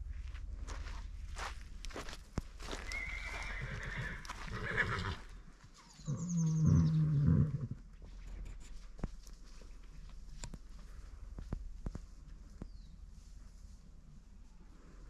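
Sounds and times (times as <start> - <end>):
horse neighing: 2.9 - 5.3, 6.1 - 7.8.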